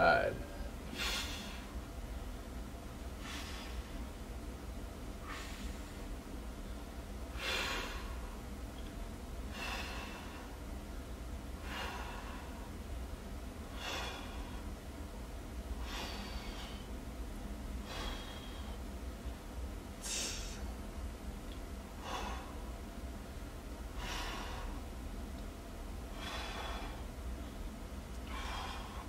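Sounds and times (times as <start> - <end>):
man breathing hard: 0.6 - 1.8, 3.2 - 4.2, 5.2 - 6.2, 7.3 - 8.5, 9.4 - 10.7, 11.6 - 12.8, 13.6 - 14.8, 15.7 - 17.0, 17.8 - 19.0, 20.0 - 20.8, 21.9 - 22.8, 23.9 - 25.0, 26.0 - 29.0.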